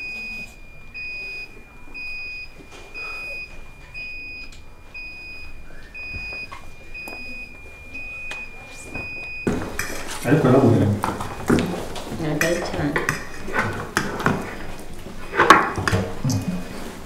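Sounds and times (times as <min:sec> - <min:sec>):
dishes and cutlery clattering: 0:09.5 - 0:10.3, 0:11.0 - 0:16.5.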